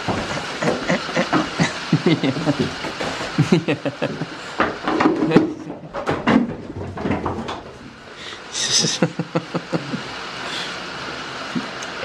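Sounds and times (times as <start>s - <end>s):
goats knocking and scuffing: 0.0s - 8.0s.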